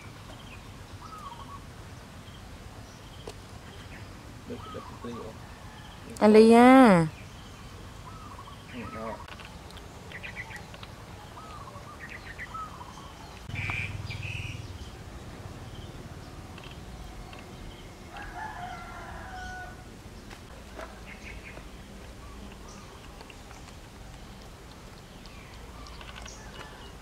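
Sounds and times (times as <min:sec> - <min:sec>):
small birds chirping: 0:00.0 - 0:27.0
rooster crowing: 0:05.4 - 0:06.3, 0:18.0 - 0:19.9, 0:26.4 - 0:27.0.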